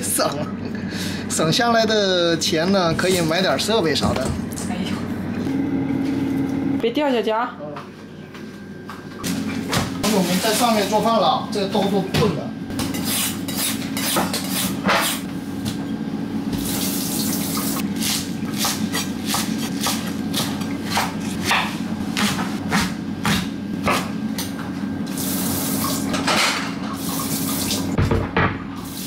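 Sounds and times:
knife chopping on wooden board: 18.5 - 24.1.

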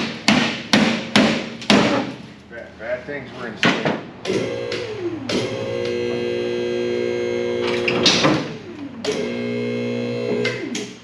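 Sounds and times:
hydraulic pump motor humming: 4.2 - 11.0.

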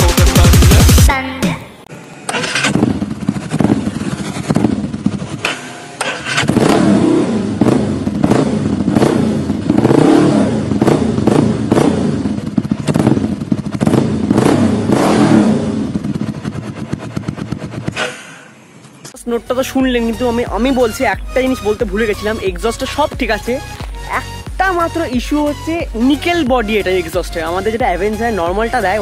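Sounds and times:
motorcycle engine revving: 2.3 - 18.6.

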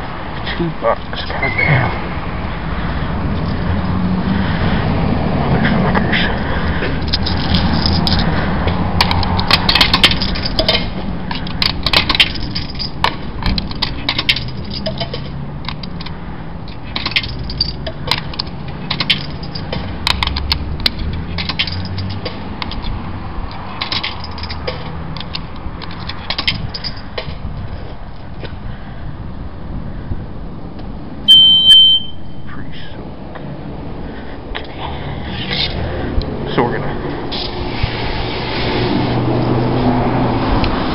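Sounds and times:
coins clinking into coin box: 11.6 - 15.8, 17.0 - 20.4, 21.3 - 22.2, 23.8 - 27.0.

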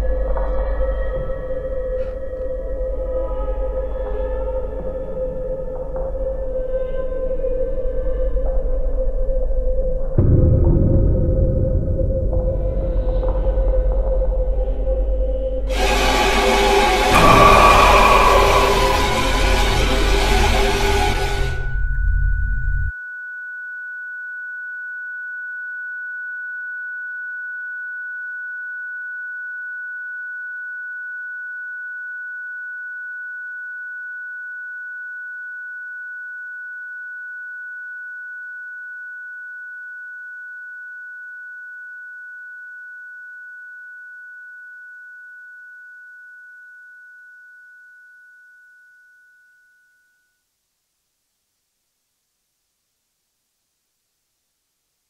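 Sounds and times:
high-pitched electronic tone: 15.7 - 22.9
loud burst of horror music: 15.7 - 22.9.

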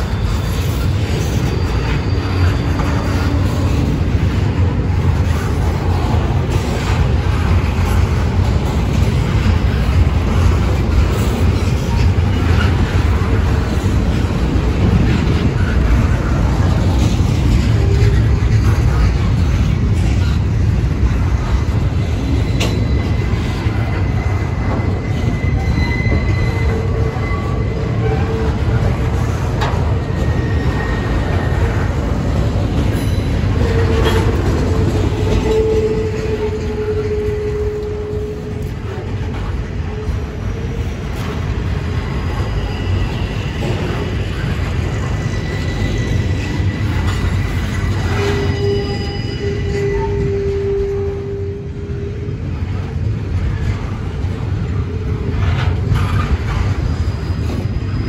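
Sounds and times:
wheel squeals: 0.0 - 4.3, 21.9 - 51.6
train wheels rumbling on rail: 0.0 - 58.0.

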